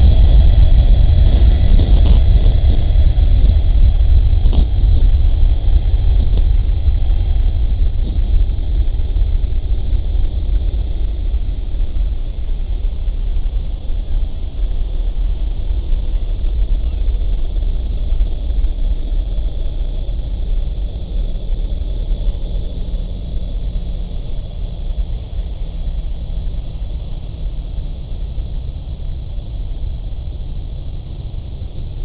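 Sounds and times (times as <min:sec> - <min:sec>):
jet engines rumbling at takeoff: 0:00.0 - 0:32.0.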